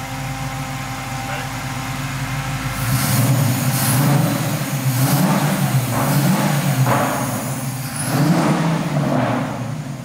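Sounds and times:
car engine revving: 2.5s - 10.0s.

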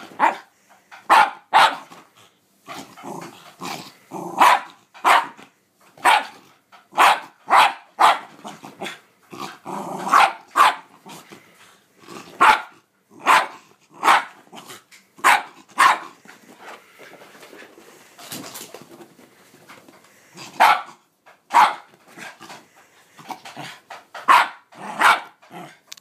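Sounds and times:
dog barking: 0.2s - 0.5s, 1.1s - 1.9s, 4.4s - 5.4s, 6.0s - 6.4s, 7.0s - 8.3s, 10.1s - 10.9s, 12.4s - 14.4s, 15.2s - 16.1s, 20.6s - 21.9s, 24.2s - 25.4s
dog growling: 2.7s - 4.4s, 8.4s - 10.2s, 12.0s - 12.4s, 22.2s - 24.0s, 24.7s - 25.9s.

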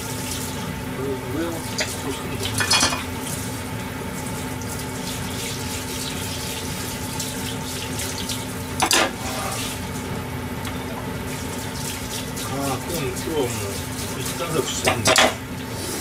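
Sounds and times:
hard object clattering in sink: 1.7s - 3.1s, 8.8s - 9.5s, 14.3s - 15.4s.

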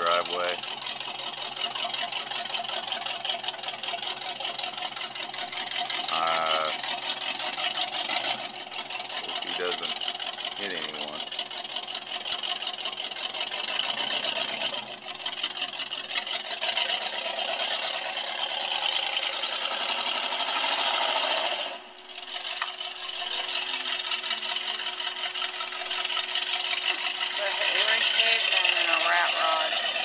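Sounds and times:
vehicle engine buzzing rattle: 0.0s - 30.0s.

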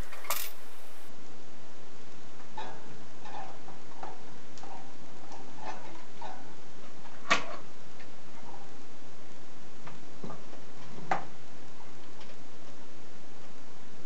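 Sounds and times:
small tools clicking on wooden bench: 0.0s - 1.1s.

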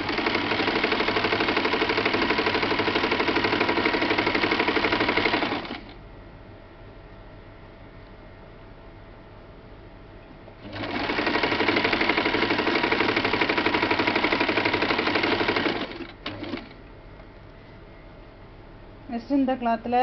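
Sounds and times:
sewing machine stitching: 0.0s - 6.0s, 10.6s - 16.8s.

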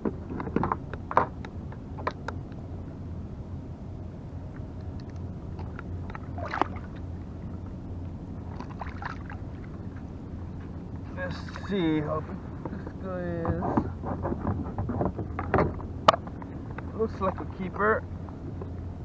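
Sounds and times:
steady low hum: 0.0s - 19.0s
water sloshing around kayak: 5.4s - 13.0s.

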